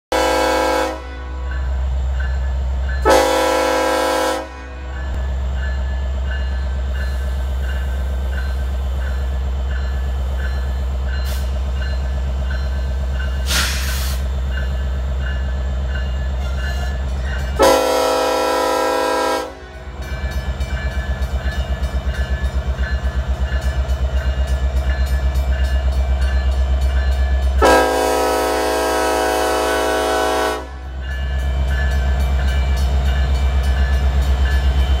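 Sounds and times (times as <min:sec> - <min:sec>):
locomotive air horn blasts: 0:00.1 - 0:01.4, 0:03.0 - 0:05.0, 0:17.6 - 0:19.8, 0:27.6 - 0:31.0.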